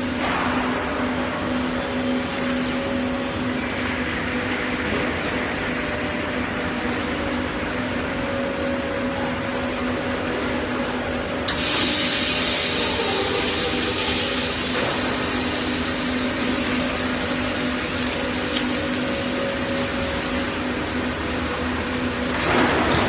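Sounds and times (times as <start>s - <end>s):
vacuum press machine hum: 0.0s - 23.0s.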